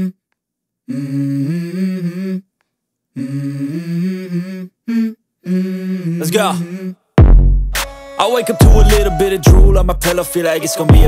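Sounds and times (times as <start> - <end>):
hummed wordless vocal melody: 0.0 - 0.2, 0.8 - 2.5, 3.1 - 7.1, 8.0 - 11.0.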